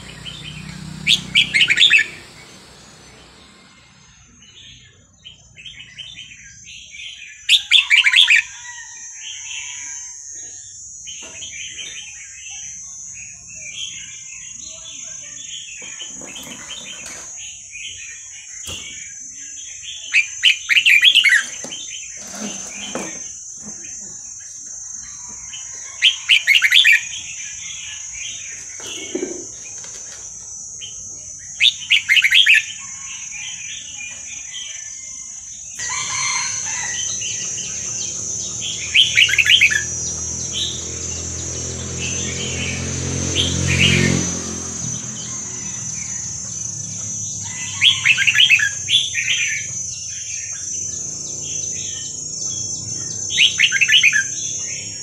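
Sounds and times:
low engine hum: 0:00.0 - 0:04.9, 0:35.8 - 0:50.1
high-pitched drone: 0:00.0 - 0:05.2, 0:35.8 - 0:55.0
bird singing bright phrases: 0:36.4 - 0:55.0.

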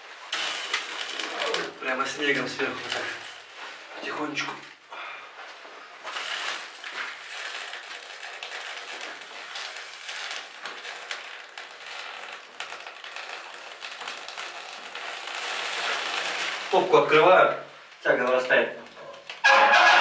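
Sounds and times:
snow crackling and sizzling on hot pipe: 0:00.0 - 0:03.8, 0:06.0 - 0:17.4.

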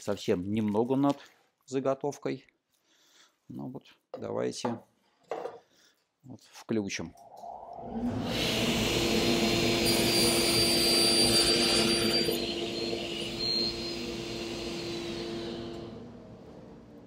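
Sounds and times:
table saw cutting chipboard: 0:07.9 - 0:16.2.

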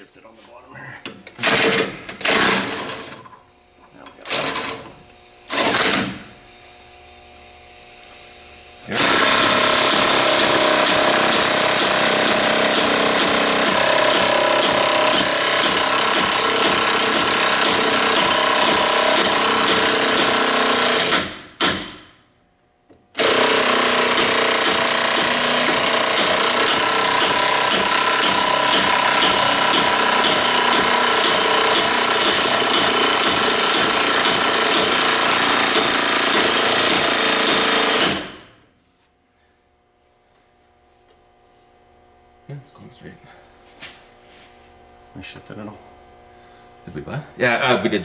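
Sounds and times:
impact wrench hammering: 0:01.1 - 0:03.2, 0:05.5 - 0:06.3, 0:08.9 - 0:22.2, 0:23.1 - 0:38.5.

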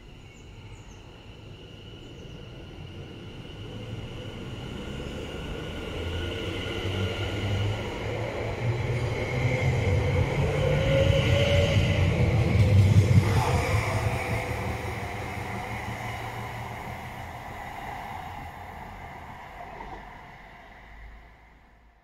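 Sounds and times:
train wheels rumbling: 0:00.0 - 0:21.8
electric train motors whining: 0:03.3 - 0:20.9.

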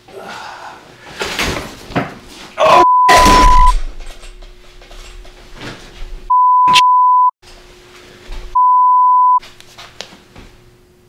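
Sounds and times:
electronic beep tones: 0:02.8 - 0:03.7, 0:06.3 - 0:07.3, 0:08.6 - 0:09.4.

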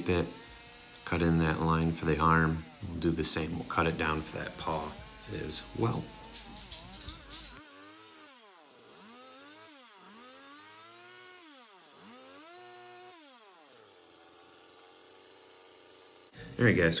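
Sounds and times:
chainsaw revving and cutting wood: 0:00.0 - 0:17.0.

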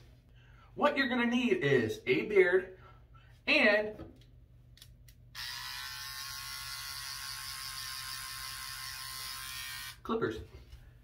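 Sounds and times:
electric hair clippers buzzing: 0:05.4 - 0:10.0.

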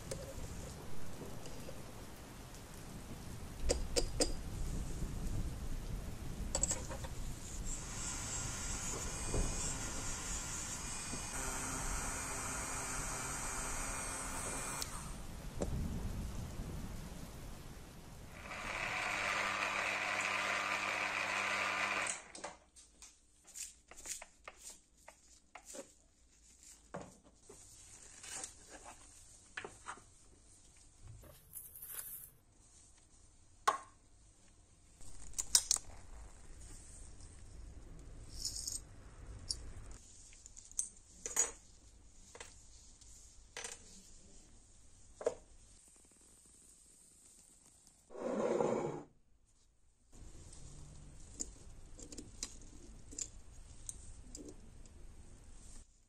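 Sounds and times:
power tool whirring: 0:07.7 - 0:15.2, 0:18.3 - 0:22.4
metal parts clicking and clinking: 0:35.1 - 0:35.9, 0:38.3 - 0:38.9.

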